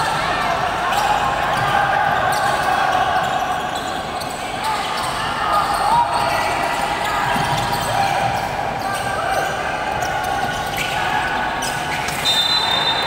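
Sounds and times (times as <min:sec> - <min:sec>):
players' voices: 0:00.0 - 0:13.0
sneaker squeaks: 0:00.9 - 0:13.0
referee whistle: 0:12.1 - 0:13.0.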